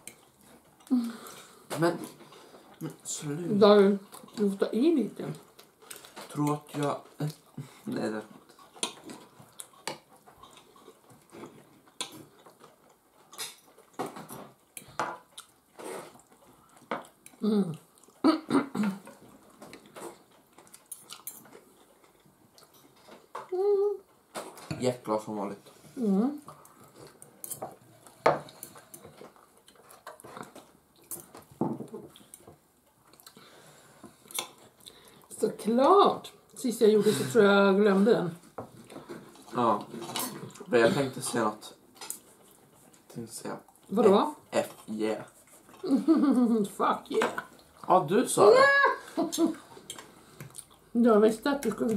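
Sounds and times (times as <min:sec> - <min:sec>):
people chewing: 0:00.0 - 0:51.9.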